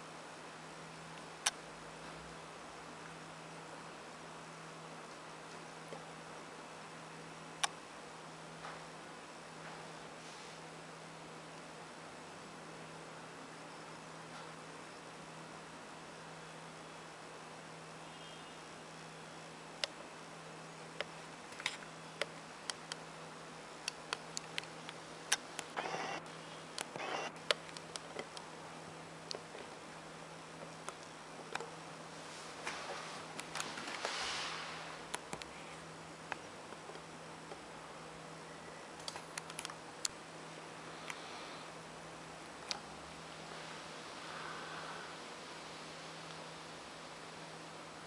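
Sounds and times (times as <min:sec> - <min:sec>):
faint low hum: 0:00.0 - 0:48.0
small sharp clicks: 0:39.0 - 0:40.2.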